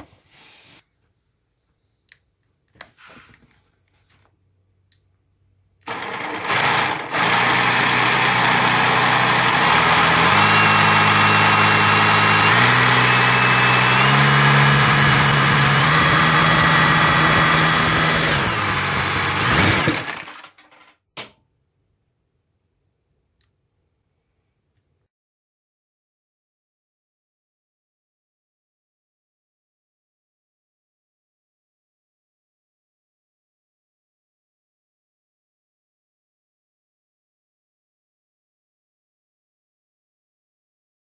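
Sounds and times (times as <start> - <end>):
drill motor whine: 5.8 - 20.3.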